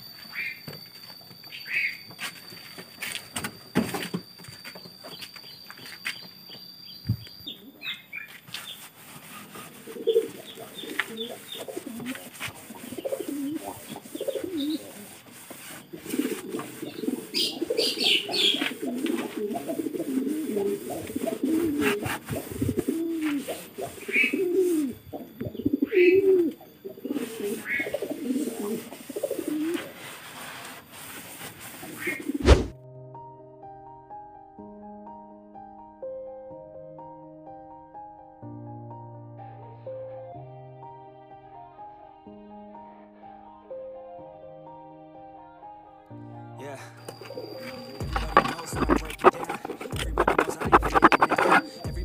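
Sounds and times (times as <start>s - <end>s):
cloth wiping bamboo floor: 0.3s - 6.4s, 8.1s - 32.8s, 47.2s - 52.0s
pigeons cooing: 9.3s - 30.2s, 31.7s - 32.6s, 47.2s - 52.0s.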